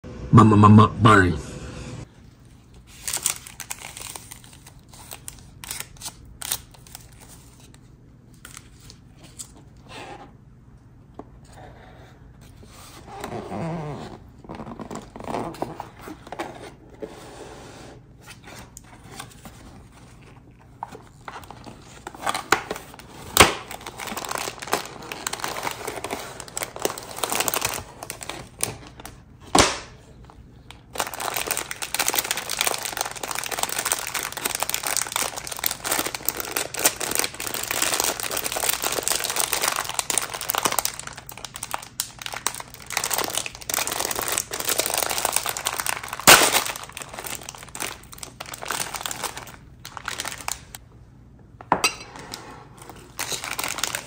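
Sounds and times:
food packaging crinkling: 2.4s - 9.8s, 18.6s - 50.8s, 52.8s - 54.0s
packaging snapping: 30.7s - 50.8s.

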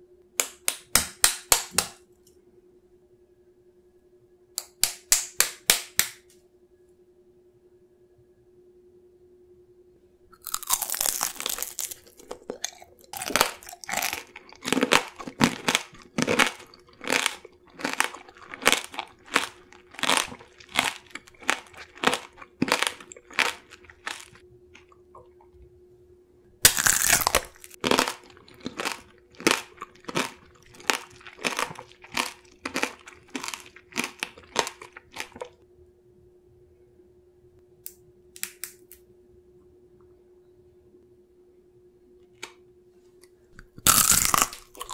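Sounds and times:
crunchy chewing: 10.3s - 25.0s, 26.6s - 35.6s, 43.6s - 44.9s
crackling crunch of biting candy: 10.4s - 24.9s, 26.6s - 35.6s, 43.6s - 44.9s.

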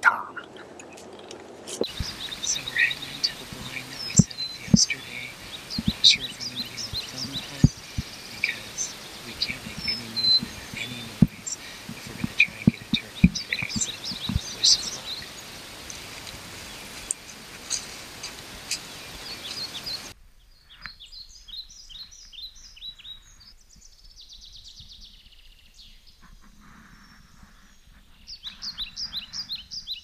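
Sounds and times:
steady rushing noise: 0.0s - 20.2s
small birds chirping: 0.0s - 30.0s.

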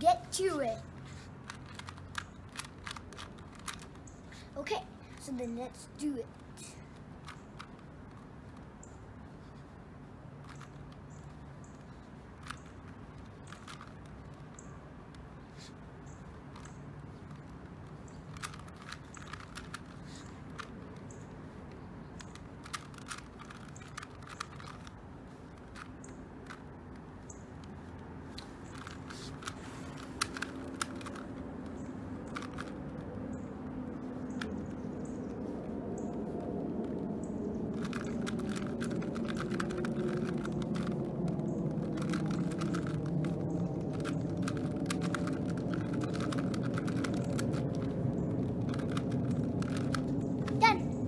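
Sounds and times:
puzzle cube clicking: 0.2s - 4.3s, 10.4s - 15.4s, 16.2s - 27.0s, 27.6s - 34.8s, 37.7s - 50.6s.

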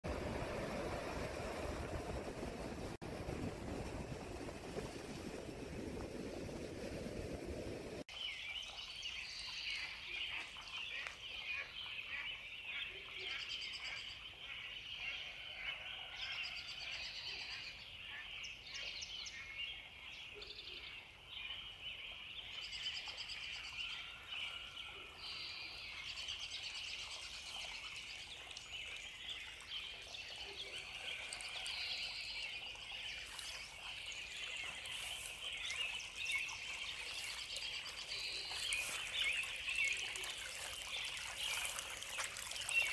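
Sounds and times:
dense high-pitched bird chorus: 20.4s - 41.8s.

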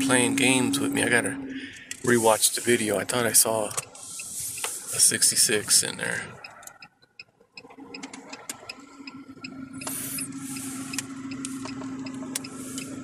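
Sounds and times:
low engine hum: 0.0s - 13.0s
turn signal clicking: 3.6s - 4.9s, 6.3s - 13.0s.

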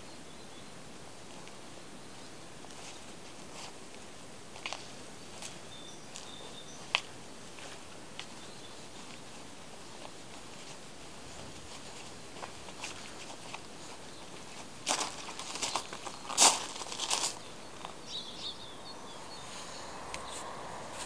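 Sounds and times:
steady outdoor hiss: 0.0s - 21.0s
footsteps crunching on gravel: 4.5s - 18.4s
bird chirping: 5.2s - 9.4s, 13.8s - 21.0s.

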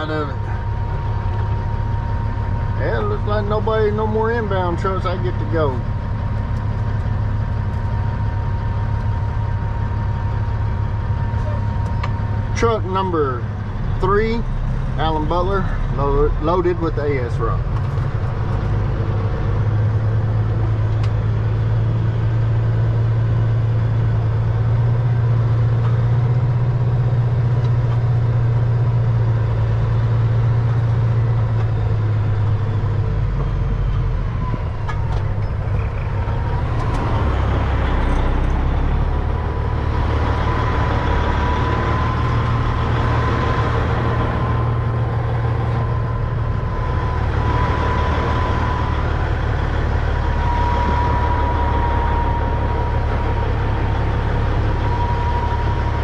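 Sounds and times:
diesel truck engine running: 0.0s - 56.0s.

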